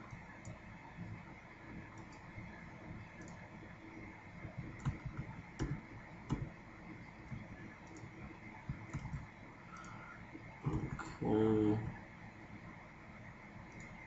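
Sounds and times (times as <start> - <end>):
computer mouse clicking: 0.0 - 0.6, 1.9 - 2.3, 3.1 - 3.5, 4.4 - 10.0, 13.6 - 14.0
low hum and hiss: 0.0 - 14.0.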